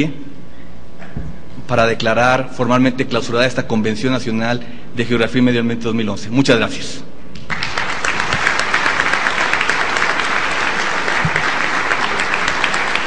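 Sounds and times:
crowd applauding: 7.5s - 13.0s.

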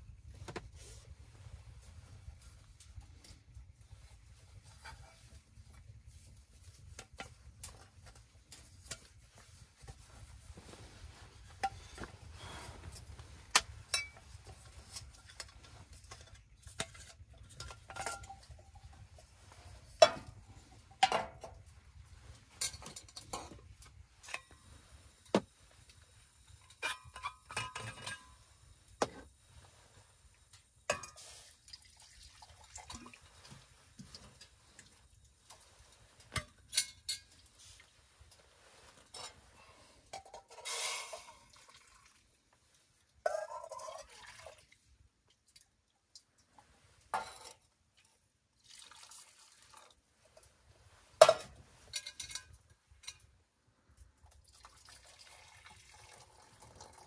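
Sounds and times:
metal cookware clinking: 13.6s - 14.3s, 14.9s - 19.1s, 22.6s - 23.6s, 26.6s - 28.4s, 30.9s - 31.3s, 36.3s - 37.5s, 51.2s - 53.3s
liquid pouring into metal cup: 41.5s - 42.3s, 43.5s - 44.8s, 48.6s - 50.0s, 54.4s - 57.0s.

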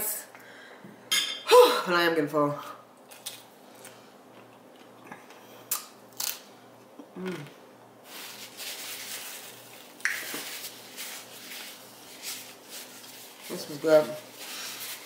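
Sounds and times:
paper napkin crinkling: 8.0s - 15.0s.

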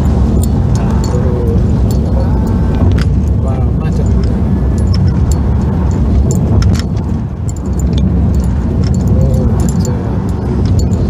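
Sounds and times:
road and engine rumble: 0.0s - 11.0s
loose object rattling clicks: 4.0s - 11.0s.

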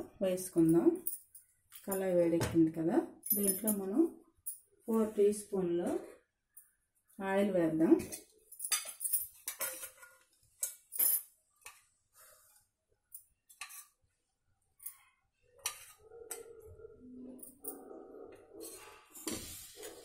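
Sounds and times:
spoon scraping pan: 15.6s - 16.4s.

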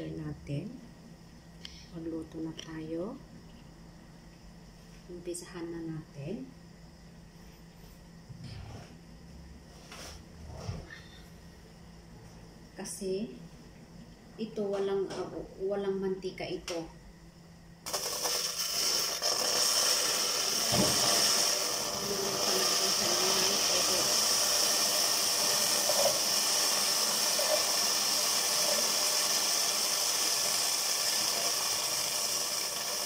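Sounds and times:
steam hissing in hot pot: 17.9s - 33.0s
water pouring from kettle: 17.9s - 33.0s.

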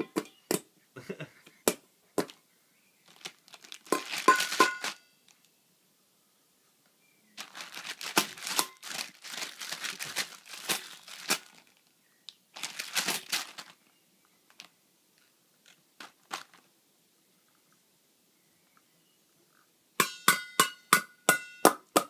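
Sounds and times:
plastic package crinkling: 3.0s - 5.5s, 7.4s - 11.9s, 12.5s - 13.9s, 15.6s - 16.7s.

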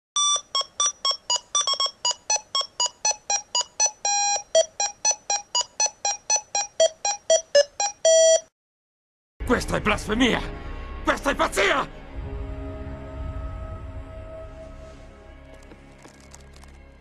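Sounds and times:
electronic beeping tune: 0.2s - 8.5s.

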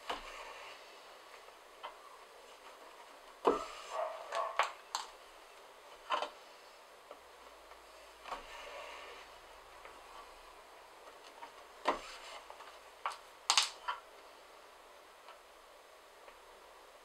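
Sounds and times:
needles clicking: 2.6s - 6.4s, 11.0s - 14.0s.

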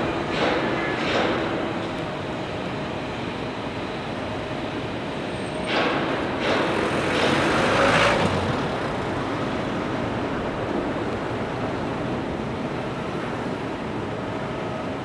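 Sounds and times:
city traffic hiss: 0.0s - 15.0s.

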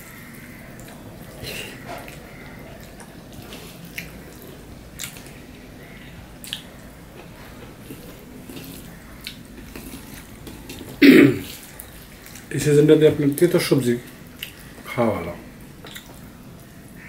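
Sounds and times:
food mixed by hand on plate: 0.8s - 5.4s, 6.4s - 12.5s
wet mouth chewing smacks: 15.8s - 16.3s.

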